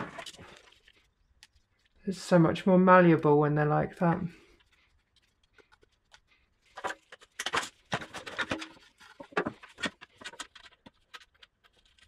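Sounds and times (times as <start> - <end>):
clicks and rattles of panel wiring: 5.2 - 12.0.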